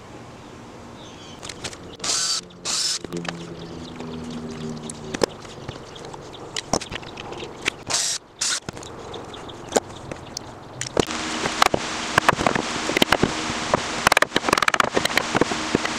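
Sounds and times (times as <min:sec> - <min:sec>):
pliers scraping nail: 0:06.6 - 0:08.9.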